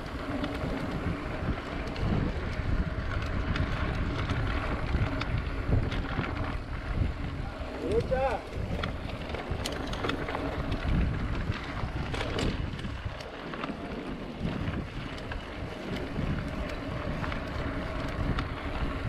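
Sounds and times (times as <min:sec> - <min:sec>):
mountain bike rolling on dirt: 0:00.0 - 0:19.0
wind on microphone: 0:00.0 - 0:19.0.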